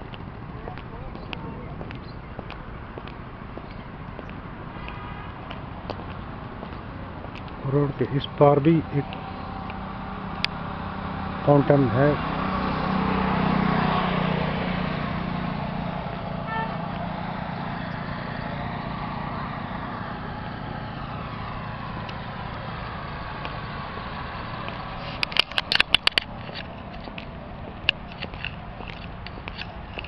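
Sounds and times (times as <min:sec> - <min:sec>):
traffic hum: 0:00.0 - 0:30.0
vehicle passing: 0:00.0 - 0:30.0
sharp clicks: 0:24.7 - 0:30.0.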